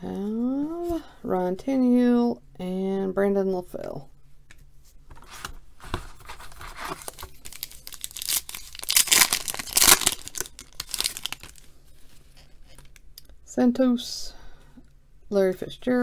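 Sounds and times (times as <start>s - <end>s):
foil wrapper crinkling: 6.3s - 11.7s
foil wrapper tearing: 6.5s - 11.7s.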